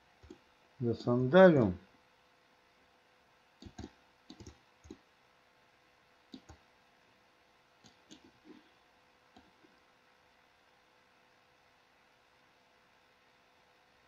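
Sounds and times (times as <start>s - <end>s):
faint computer mouse clicks: 3.6s - 5.0s, 7.8s - 8.6s.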